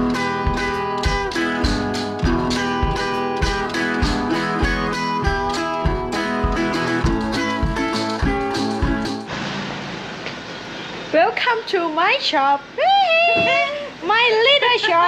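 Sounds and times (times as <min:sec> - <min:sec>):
guitar music over steady beat: 0:00.0 - 0:09.3.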